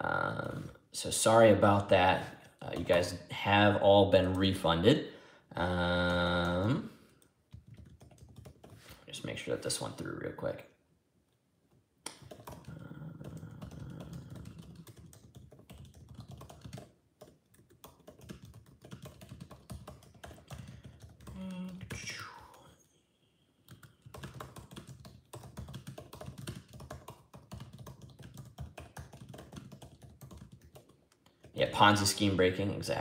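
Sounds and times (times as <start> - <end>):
keyboard typing clicks: 12.1 - 22.0.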